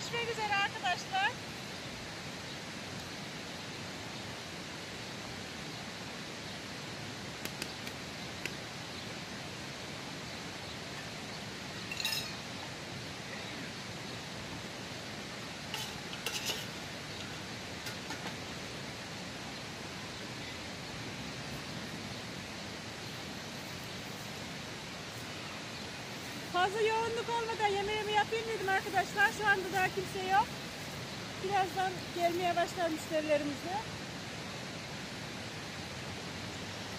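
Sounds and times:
stream water rushing: 0.0s - 36.9s
metal lid and spoon clinking pot: 11.9s - 12.5s, 15.7s - 16.8s.

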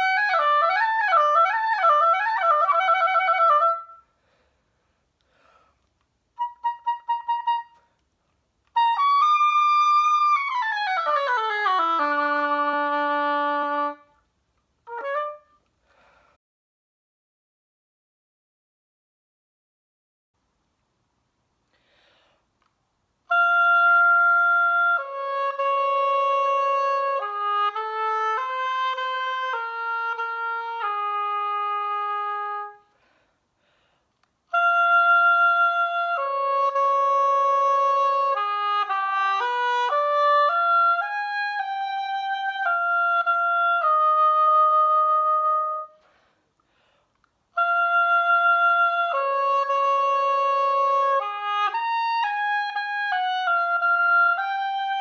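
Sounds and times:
solo oboe melody: 0.0s - 4.4s, 6.3s - 8.0s, 8.6s - 16.1s, 23.2s - 33.2s, 34.5s - 46.4s, 47.5s - 55.0s.

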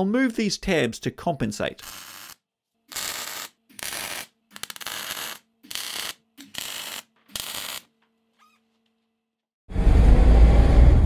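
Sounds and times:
welding arc bursts: 1.8s - 7.9s.

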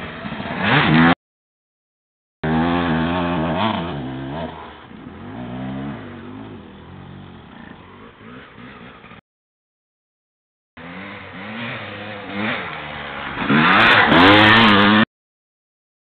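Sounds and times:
dirt bike engine revving: 0.0s - 1.2s, 2.4s - 9.2s, 10.8s - 15.1s.

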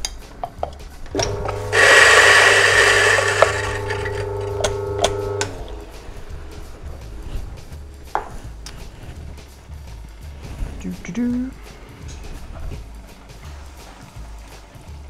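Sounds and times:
coffee grinder grinding beans: 1.2s - 5.6s.

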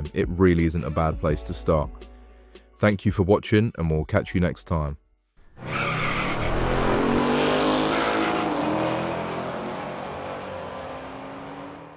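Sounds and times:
car engine at high revs: 5.6s - 11.9s.

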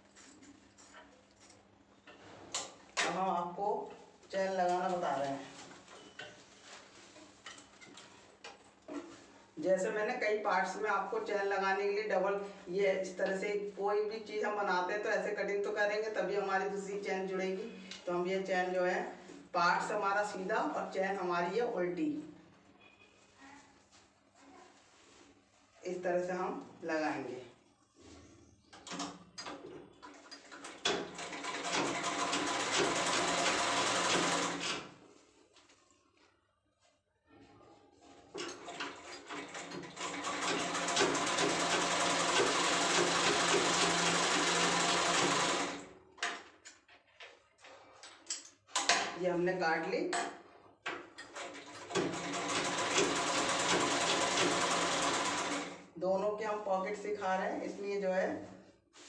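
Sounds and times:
sewing machine stitching: 30.0s - 34.9s, 38.4s - 45.9s, 51.2s - 55.8s.

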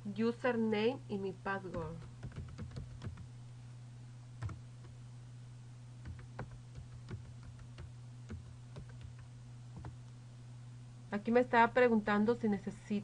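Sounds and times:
steady low hum: 0.0s - 13.0s
computer keyboard keystrokes: 1.7s - 3.3s, 4.4s - 5.0s, 6.0s - 10.0s.

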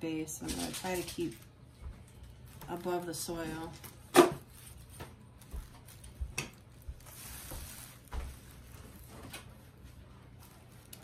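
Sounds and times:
soil and plastic rustling: 0.3s - 11.0s.

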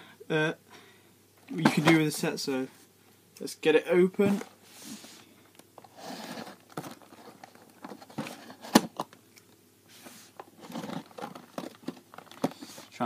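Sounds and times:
cardboard scraping and rustling: 5.8s - 9.0s, 9.9s - 13.0s.

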